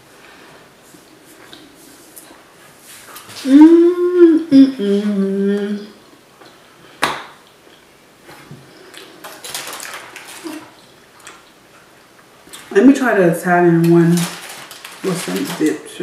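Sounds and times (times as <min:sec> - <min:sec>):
soft rustling: 0:00.1 - 0:04.1
woman humming: 0:03.4 - 0:06.0.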